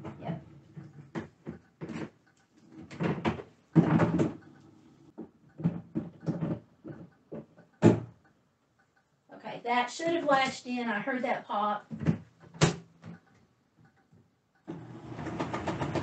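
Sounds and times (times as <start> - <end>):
plastic basket clunks and knocks: 2.9 - 4.4, 5.2 - 8.2.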